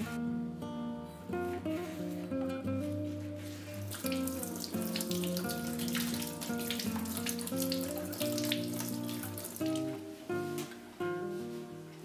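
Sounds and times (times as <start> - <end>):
background guitar music: 0.0 - 12.0
tap water splashing: 3.8 - 10.0.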